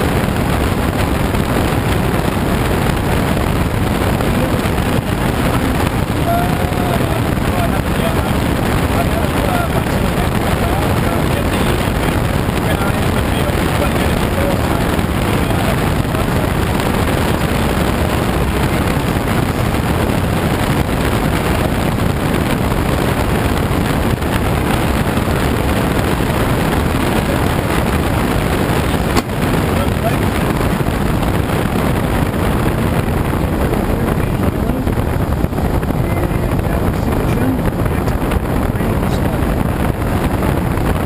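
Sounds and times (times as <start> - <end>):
air rushing over glider canopy: 0.0 - 41.0.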